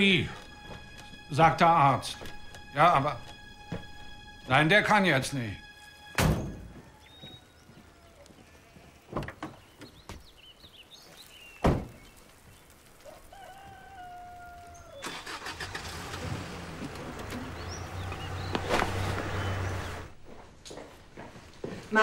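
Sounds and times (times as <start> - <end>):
birds chirping: 0.0 - 22.0
engine running low hum: 15.0 - 20.4.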